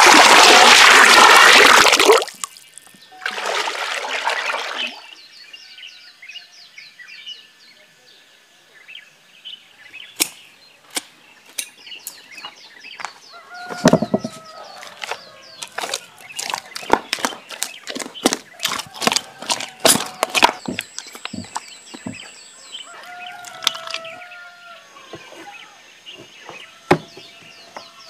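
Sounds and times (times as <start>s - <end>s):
small birds chirping: 4.8s - 28.0s
wet clay slapping and squelching: 15.0s - 21.6s.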